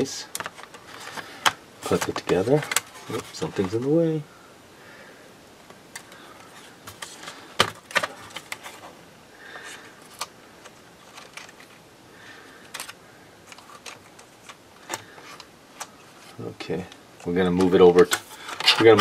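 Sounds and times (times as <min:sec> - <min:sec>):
plastic clicks: 0:00.3 - 0:03.8, 0:12.6 - 0:16.0.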